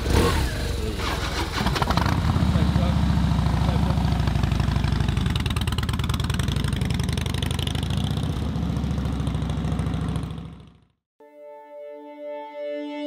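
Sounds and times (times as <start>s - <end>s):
motorcycle engine idling: 0.0s - 10.9s
music with held tones: 11.2s - 13.0s.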